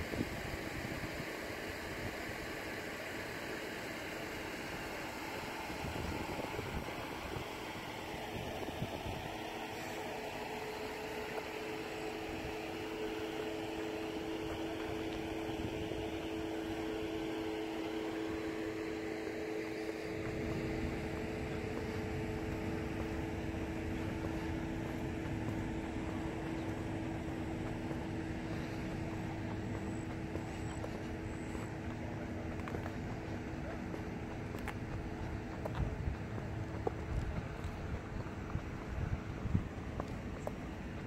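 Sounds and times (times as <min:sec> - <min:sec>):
mechanical hum: 0:00.0 - 0:41.0
outdoor background noise: 0:00.0 - 0:41.0
low rumble: 0:12.2 - 0:41.0.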